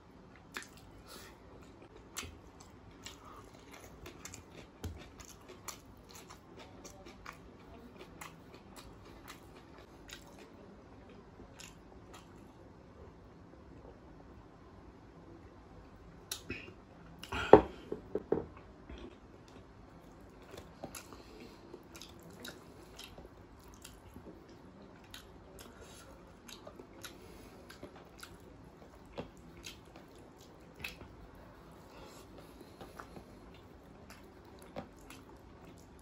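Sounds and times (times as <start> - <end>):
soft chewing: 0.2 - 14.0, 18.5 - 36.0
loud eating sounds: 0.5 - 10.6, 18.9 - 36.0.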